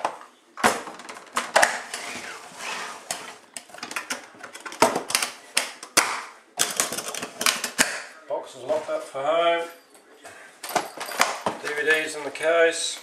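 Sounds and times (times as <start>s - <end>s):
plastic toolbox clacks and knocks: 0.0s - 1.9s, 3.6s - 8.0s, 10.7s - 11.8s.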